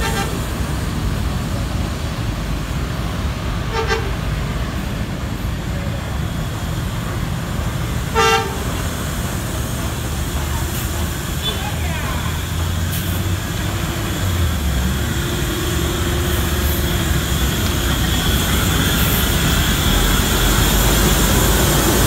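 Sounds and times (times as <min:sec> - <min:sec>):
vehicle horn toots: 0:00.0 - 0:00.4, 0:03.7 - 0:04.2, 0:08.1 - 0:08.7
street traffic: 0:00.0 - 0:22.0.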